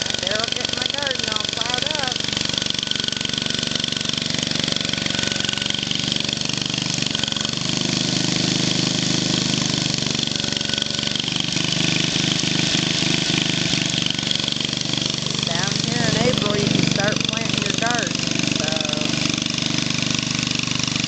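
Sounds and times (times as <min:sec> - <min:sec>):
tractor engine running under load: 0:00.0 - 0:21.0.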